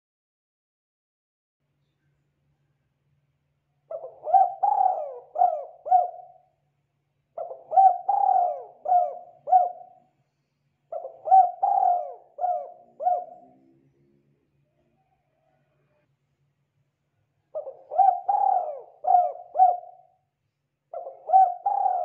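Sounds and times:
dove cooing: 0:03.9 - 0:06.5, 0:07.4 - 0:10.0, 0:10.9 - 0:13.7, 0:17.5 - 0:20.2, 0:20.9 - 0:22.0.

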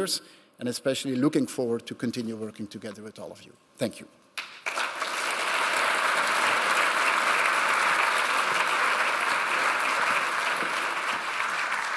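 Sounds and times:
audience applauding: 0:04.4 - 0:11.9.

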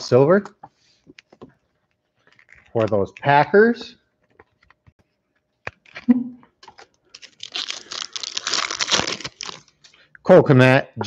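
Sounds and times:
foil wrapper crinkling: 0:05.6 - 0:10.0.

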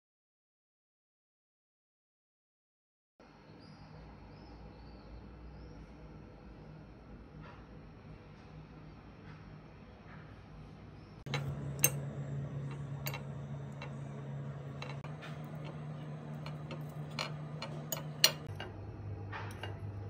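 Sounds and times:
fork clinking on ceramic plate: 0:11.3 - 0:18.7
low hum: 0:11.3 - 0:20.0.

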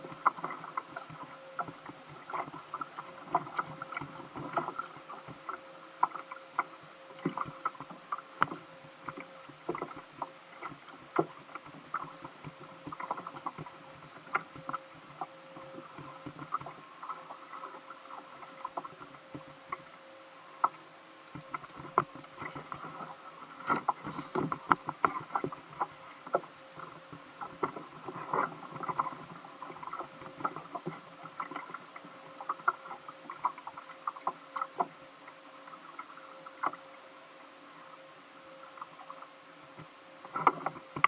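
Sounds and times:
clicks and knocks on kayak: 0:00.0 - 0:17.8, 0:20.6 - 0:31.8, 0:39.8 - 0:41.0
water lapping at hull: 0:00.0 - 0:41.0.

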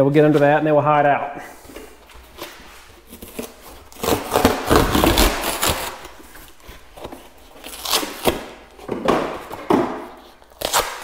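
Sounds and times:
cardboard rustling: 0:01.6 - 0:10.9
cardboard box tearing: 0:03.0 - 0:08.6.

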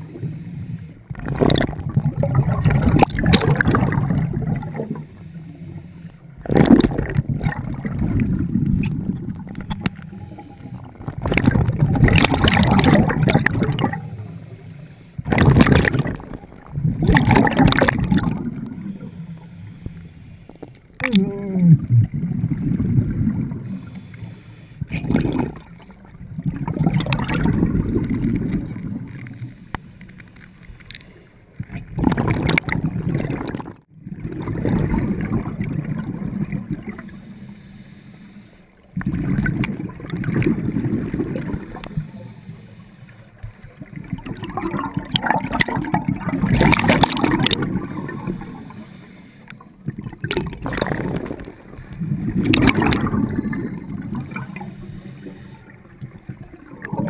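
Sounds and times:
regulator inhale hiss: 0:00.0 - 0:01.0, 0:05.0 - 0:06.3, 0:14.2 - 0:15.3, 0:18.6 - 0:21.0, 0:23.6 - 0:24.9, 0:29.4 - 0:30.7, 0:37.0 - 0:38.9, 0:41.6 - 0:43.9, 0:48.0 - 0:49.8, 0:54.2 - 0:56.0
exhaled bubbles rushing: 0:01.1 - 0:05.2, 0:06.3 - 0:14.5, 0:15.2 - 0:19.1, 0:21.0 - 0:23.9, 0:24.8 - 0:29.4, 0:31.6 - 0:37.2, 0:39.0 - 0:42.2, 0:43.8 - 0:48.8, 0:49.7 - 0:57.0.

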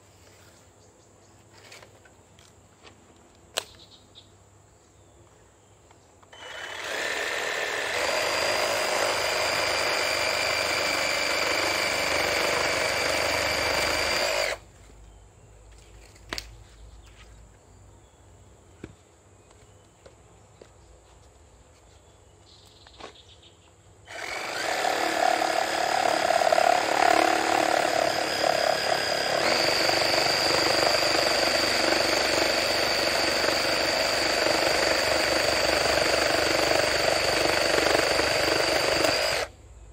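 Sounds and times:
reciprocating saw cutting branches: 0:06.3 - 0:14.6, 0:24.1 - 0:39.5.

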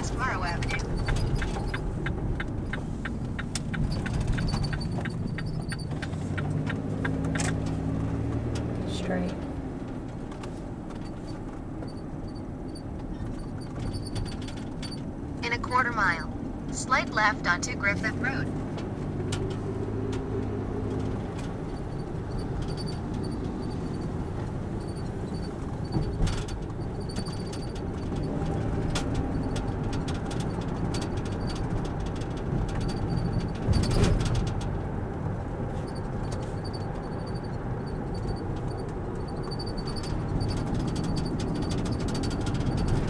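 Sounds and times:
car engine and tyre rumble: 0:00.0 - 0:43.0
faint regular ticking: 0:00.1 - 0:07.7.

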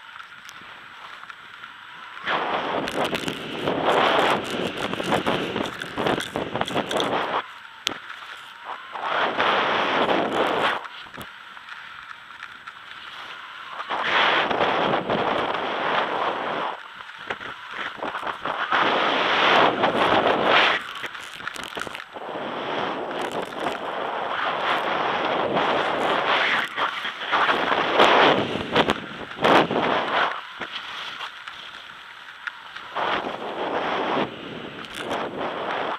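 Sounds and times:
skis scraping on packed snow: 0:00.0 - 0:35.9
wind on microphone: 0:02.2 - 0:11.3, 0:13.6 - 0:35.9.

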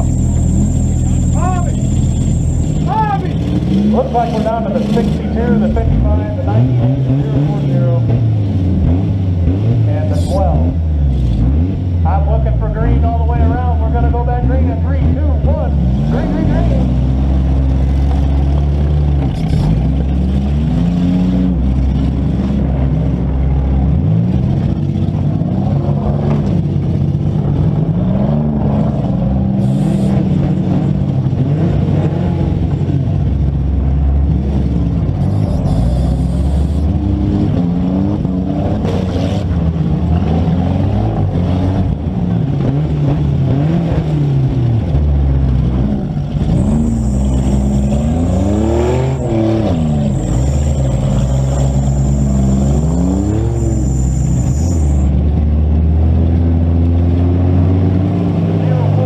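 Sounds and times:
car engines revving: 0:00.0 - 0:59.0.

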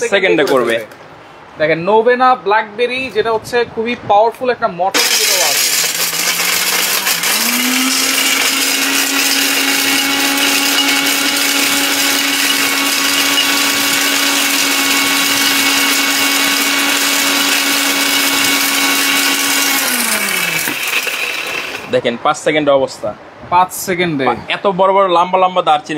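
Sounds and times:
electric blender grinding: 0:05.0 - 0:21.9.

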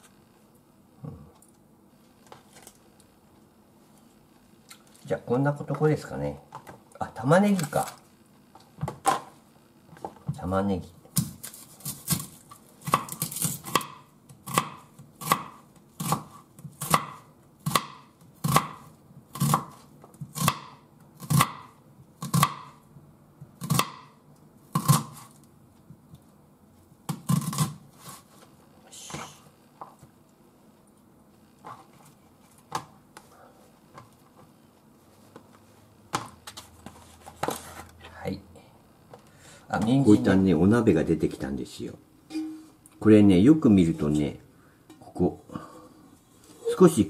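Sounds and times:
knife slicing onion on board: 0:11.1 - 0:22.8, 0:23.6 - 0:24.1, 0:24.7 - 0:25.4, 0:27.1 - 0:28.3.

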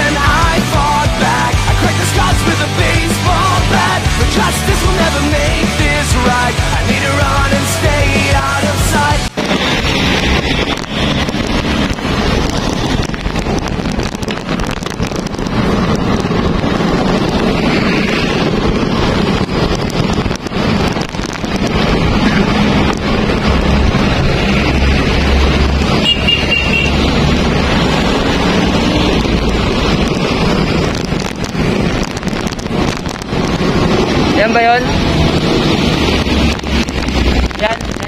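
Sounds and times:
road traffic passing: 0:00.0 - 0:38.0
wind buffeting microphone: 0:09.2 - 0:38.0.

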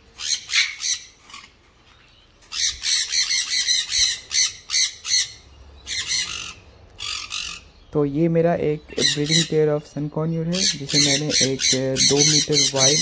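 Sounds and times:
parrots screeching: 0:00.0 - 0:01.7, 0:02.4 - 0:07.8, 0:09.0 - 0:09.6, 0:10.5 - 0:13.0.

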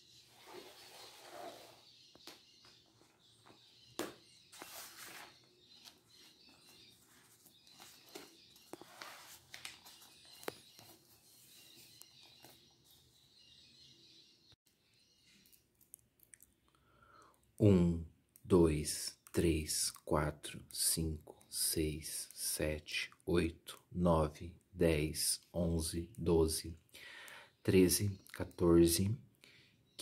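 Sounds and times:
faint high bird chirps: 0:00.0 - 0:15.7
notebook and pen handling: 0:04.0 - 0:13.0.

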